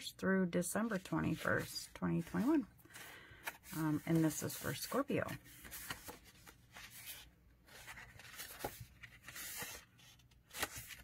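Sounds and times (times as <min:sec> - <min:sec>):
paper pages rustling: 0:00.8 - 0:11.0.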